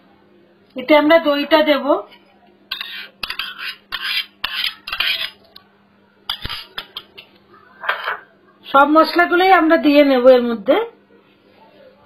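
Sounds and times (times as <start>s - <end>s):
spoon scraping a bowl: 2.1s - 5.5s, 6.3s - 7.2s.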